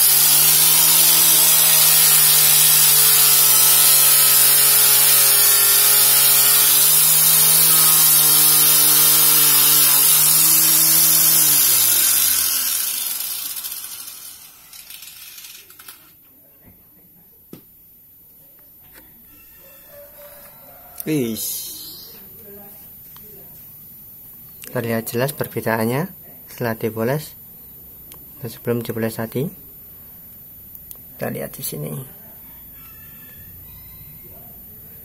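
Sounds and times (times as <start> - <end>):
angle grinder buffing metal: 0.0 - 16.1.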